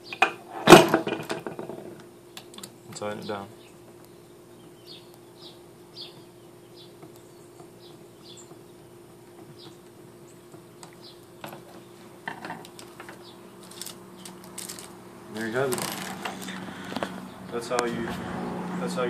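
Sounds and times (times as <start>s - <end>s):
steady low hum: 0.0s - 19.0s
tool and cable clattering: 12.3s - 15.0s, 15.6s - 17.2s.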